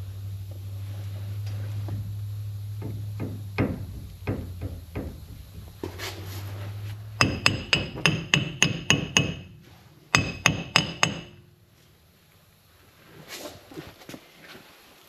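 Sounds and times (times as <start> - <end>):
hammer striking metal hub: 2.7 - 6.0, 7.1 - 11.5.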